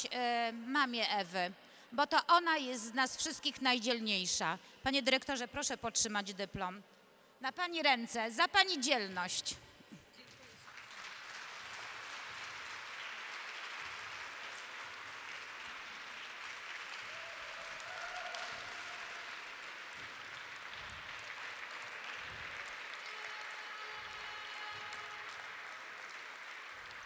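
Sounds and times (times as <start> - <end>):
audience applauding: 10.2 - 27.0.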